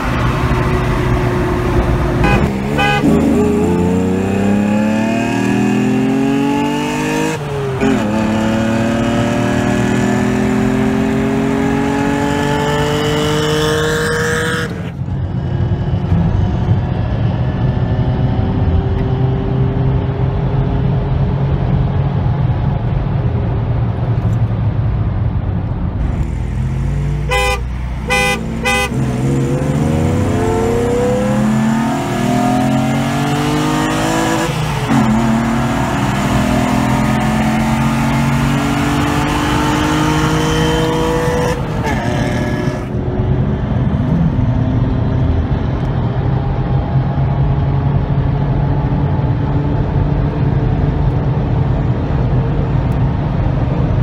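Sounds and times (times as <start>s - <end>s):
car engine accelerating: 0.0s - 54.0s
loud rushing wind: 0.0s - 54.0s
car horn toots: 2.2s - 3.6s, 27.2s - 29.1s, 41.4s - 42.9s.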